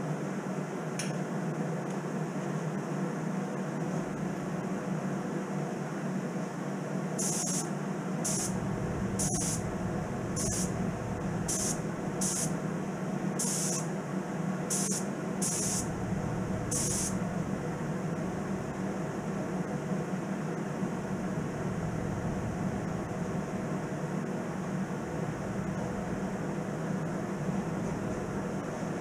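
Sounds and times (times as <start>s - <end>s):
steady low hum: 0.0s - 29.0s
spray gun hissing bursts: 7.2s - 7.6s, 8.2s - 10.8s, 11.4s - 12.6s, 13.4s - 13.9s, 14.7s - 15.9s, 16.7s - 17.3s.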